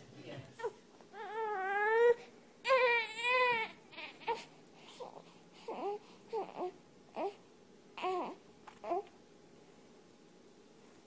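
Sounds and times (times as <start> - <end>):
infant crying: 0.6 - 7.4, 8.0 - 9.1.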